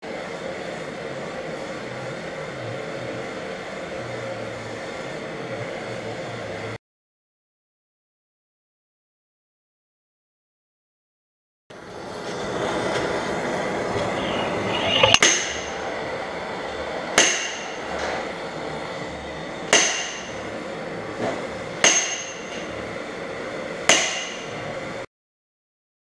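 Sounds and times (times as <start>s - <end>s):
gas torch hissing: 11.8s - 19.7s
slide hammer clanging: 21.8s - 22.7s.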